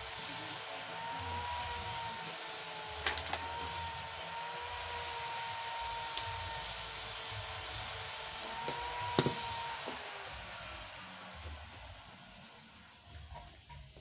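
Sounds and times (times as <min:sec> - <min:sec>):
machine whine: 0:00.0 - 0:13.8.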